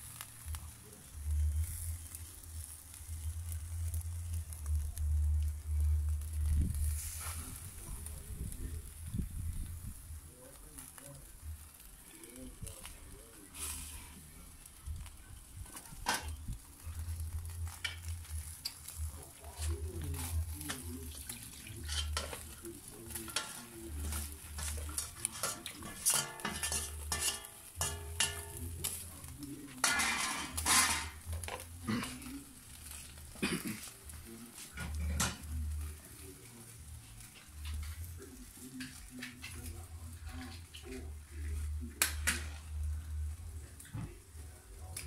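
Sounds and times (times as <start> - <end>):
metal spoon scraping a pan: 19.6 - 29.0, 29.7 - 32.0
cookware clattering: 24.6 - 28.6, 29.8 - 31.2.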